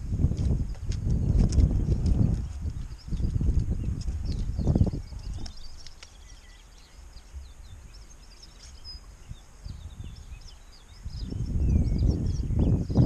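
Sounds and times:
small birds chirping: 0:00.0 - 0:13.0
faint clicks: 0:05.2 - 0:06.3.

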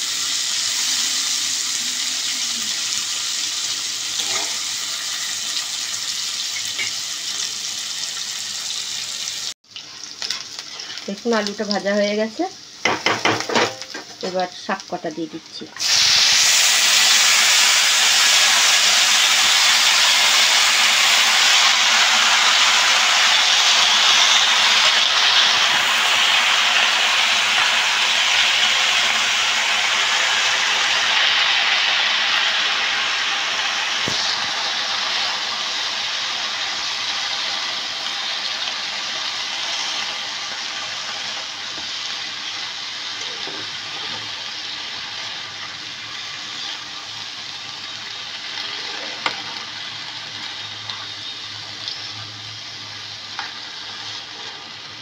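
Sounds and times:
spinach sizzling in hot oil: 0:00.0 - 0:55.0
spatula tapping a pan: 0:12.8 - 0:14.0.

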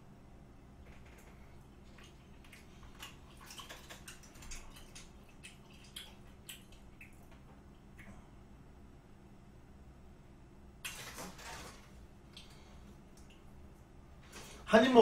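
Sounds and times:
person chewing wetly: 0:01.0 - 0:08.3.

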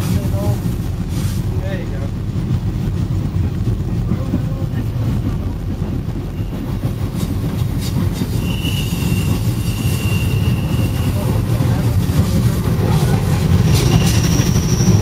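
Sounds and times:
train rumble: 0:00.0 - 0:15.0
train wheel clacks: 0:00.0 - 0:15.0
high-pitched wheel squeal: 0:08.3 - 0:11.4, 0:13.7 - 0:15.0.

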